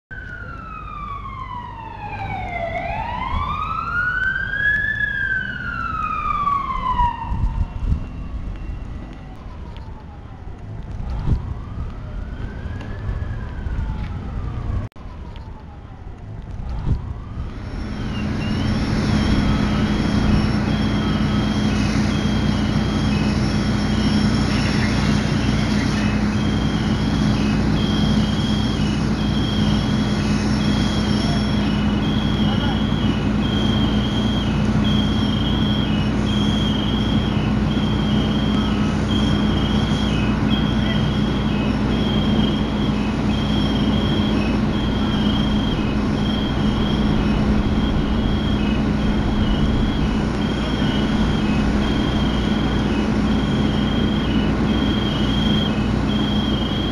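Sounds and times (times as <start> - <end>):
emergency vehicle siren wailing: 0.1 - 56.9
steady rushing noise: 16.2 - 35.8, 36.4 - 56.9.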